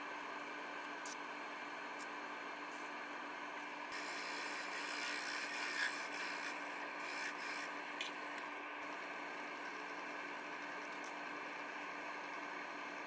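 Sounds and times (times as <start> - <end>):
chisel cutting spinning wood: 3.9 - 10.6
wood lathe humming: 3.9 - 10.6
sandpaper rubbing spinning wood: 4.0 - 7.8.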